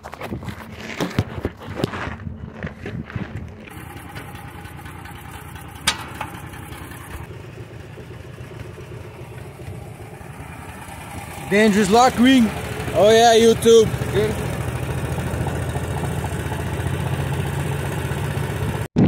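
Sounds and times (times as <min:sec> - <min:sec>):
handling clatter: 0:00.0 - 0:07.3
engine idling: 0:02.2 - 0:18.9.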